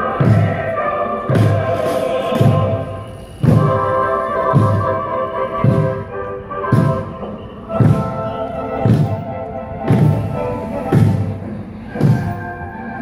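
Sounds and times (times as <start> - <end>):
marching drums striking: 0.0 - 12.5
music with long held notes: 0.0 - 13.0.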